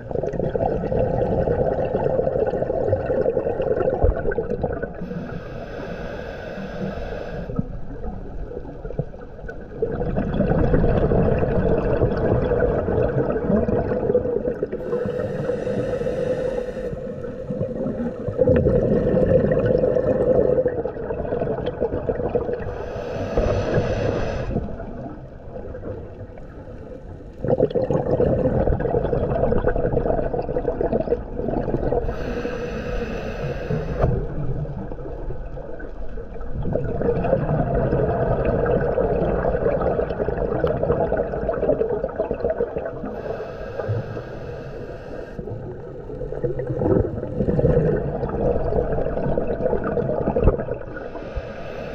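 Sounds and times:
exhaled bubbles rushing: 0.0 - 5.4, 7.6 - 15.9, 16.9 - 32.2, 33.7 - 44.0, 45.4 - 51.2
regulator hissing inhale: 5.0 - 7.8, 14.8 - 18.4, 22.7 - 24.8, 32.0 - 34.4, 43.1 - 45.6, 51.0 - 51.9.

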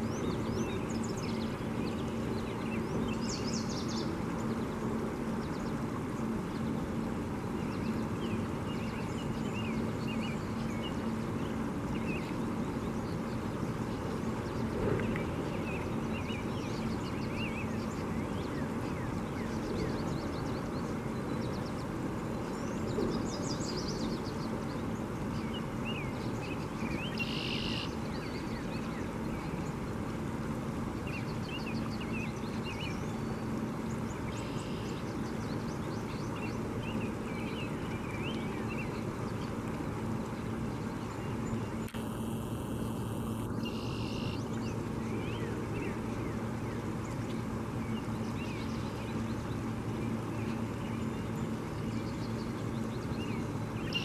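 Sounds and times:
songbirds chirping: 0.0 - 54.0
buzzy high bird calls: 25.5 - 29.6, 41.3 - 47.2, 47.9 - 54.0.

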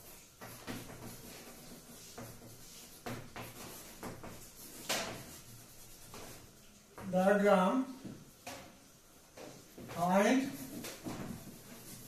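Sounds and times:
chalk scratching on a blackboard: 0.0 - 6.8, 9.7 - 12.0.

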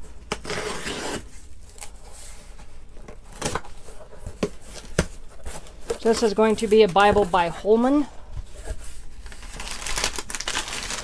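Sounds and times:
packing tape ripping off cardboard: 0.2 - 1.9, 9.2 - 11.0.

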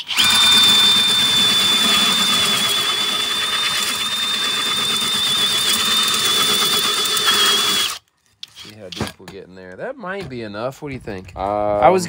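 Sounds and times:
cordless drill motor whine: 0.0 - 8.0
hole saw teeth cutting wood: 0.0 - 9.0.

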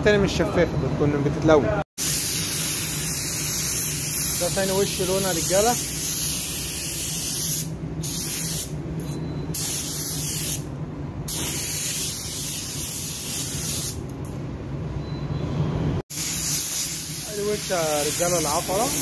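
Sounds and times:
paint spray gun hissing: 2.0 - 4.6, 5.4 - 8.7, 9.6 - 10.6, 11.3 - 14.0, 16.1 - 19.0.

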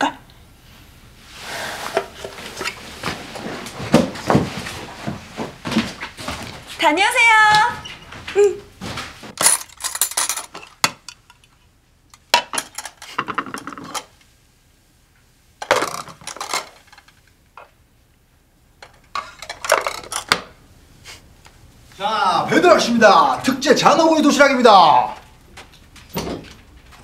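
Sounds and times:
lunchbox clinking and clattering: 9.4 - 11.2, 15.6 - 17.1.

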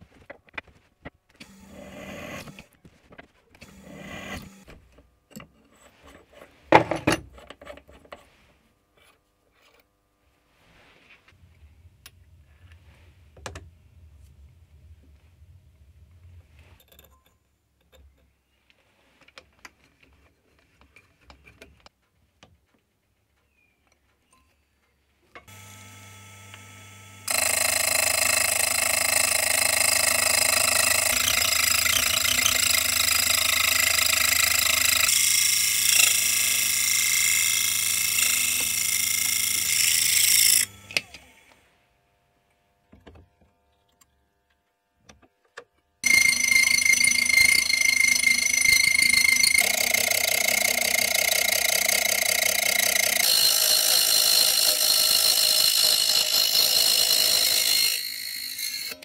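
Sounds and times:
saw spinning down: 25.5 - 41.5, 46.0 - 59.0
saw cutting metal screech: 27.3 - 40.7, 46.0 - 59.0.

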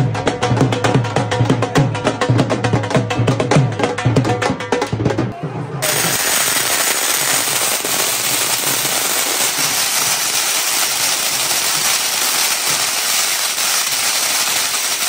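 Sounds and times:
firecrackers crackling: 5.8 - 15.0.

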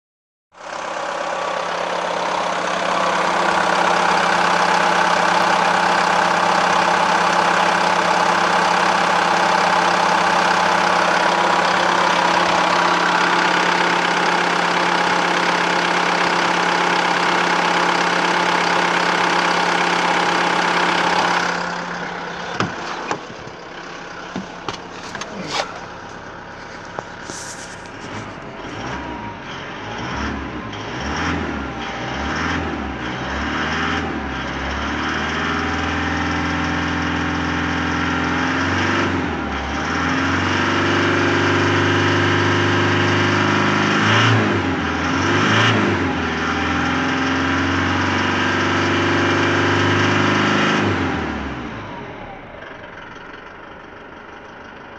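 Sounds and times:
diesel engine idling: 0.6 - 33.1, 51.1 - 54.9
clicks and knocks: 24.3 - 28.3.

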